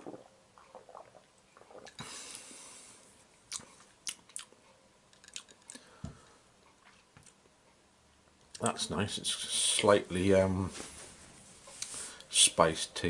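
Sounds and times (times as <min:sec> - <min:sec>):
person sipping: 0:00.0 - 0:04.6.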